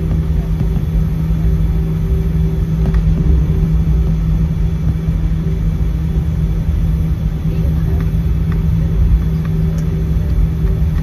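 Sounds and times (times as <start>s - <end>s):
constant cabin hum: 0.0s - 11.0s
jet engines low rumble: 0.0s - 11.0s.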